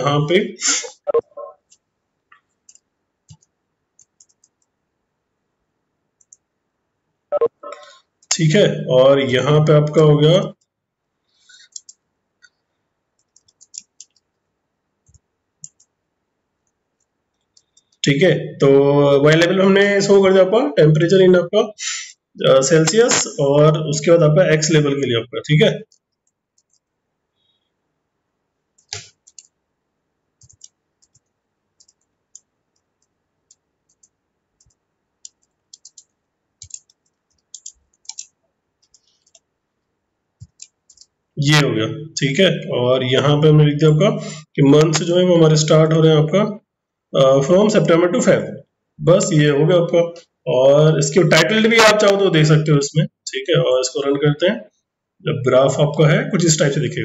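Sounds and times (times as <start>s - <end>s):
keyboard keys clicking: 2.6s - 4.7s, 11.7s - 12.0s, 13.2s - 14.4s, 15.0s - 15.9s, 25.9s - 26.9s, 28.8s - 29.5s, 30.4s - 39.4s, 40.4s - 41.1s.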